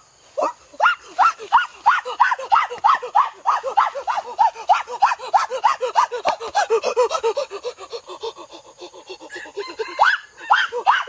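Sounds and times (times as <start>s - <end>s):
chickens clucking: 9.0s - 10.2s.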